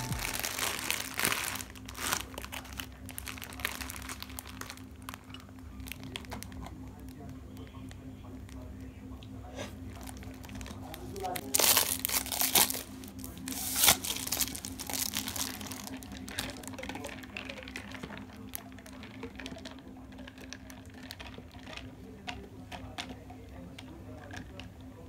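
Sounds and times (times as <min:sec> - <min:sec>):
plastic bag crinkling: 0:00.0 - 0:07.3, 0:09.9 - 0:22.3.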